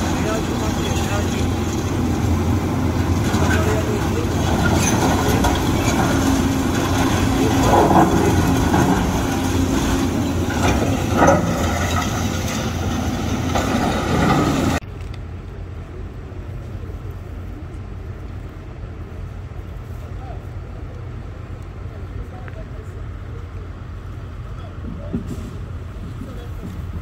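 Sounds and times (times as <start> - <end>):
excavator buckets clanking: 0.0 - 14.8
diesel engines running: 0.0 - 27.0.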